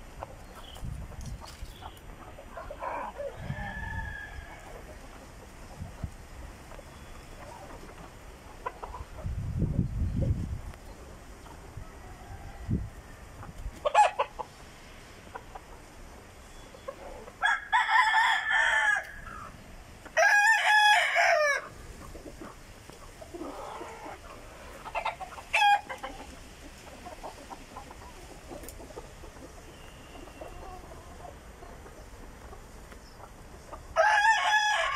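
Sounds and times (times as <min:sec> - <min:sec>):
chicken clucks: 0:00.0 - 0:17.4, 0:21.6 - 0:34.2
rooster crowing: 0:02.8 - 0:04.7, 0:11.8 - 0:13.2, 0:17.4 - 0:19.4, 0:20.2 - 0:21.7, 0:34.0 - 0:34.9.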